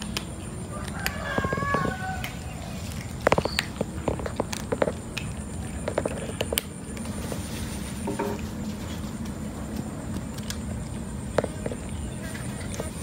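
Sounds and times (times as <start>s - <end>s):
cat crunching dry kibble: 0.0s - 7.2s, 8.8s - 13.0s.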